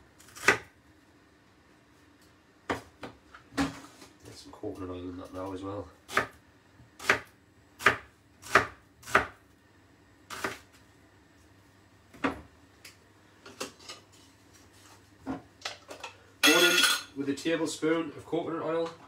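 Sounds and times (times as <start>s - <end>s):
knife slicing onion on wooden board: 7.0s - 9.4s, 10.3s - 10.7s.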